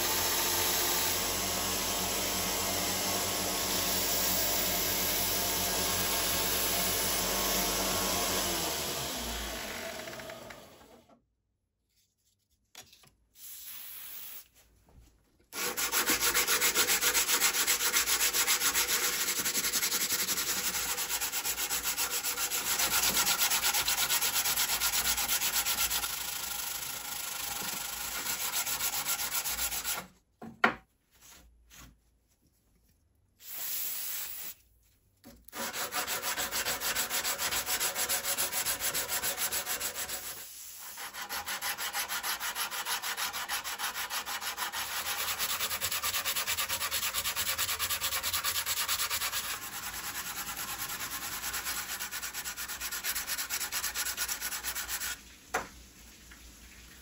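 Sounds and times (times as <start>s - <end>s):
sandpaper rubbing on wood: 15.6s - 26.4s, 27.5s - 30.0s, 35.6s - 55.2s.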